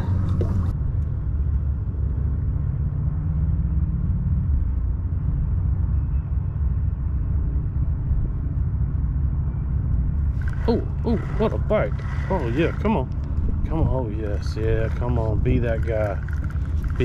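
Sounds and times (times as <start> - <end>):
wind buffeting microphone: 3.5 - 17.0.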